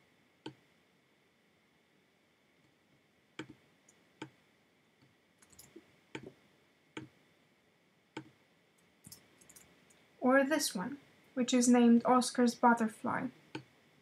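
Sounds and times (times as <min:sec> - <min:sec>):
computer mouse clicking: 0:03.4 - 0:04.4, 0:05.0 - 0:06.4, 0:09.0 - 0:10.0.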